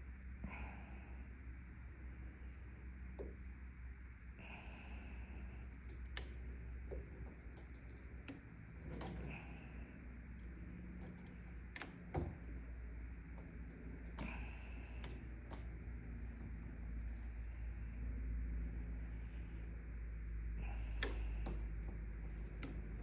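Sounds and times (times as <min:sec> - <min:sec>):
faint low hum: 0:00.0 - 0:23.0
motor shaft clicks and knocks: 0:05.8 - 0:16.6.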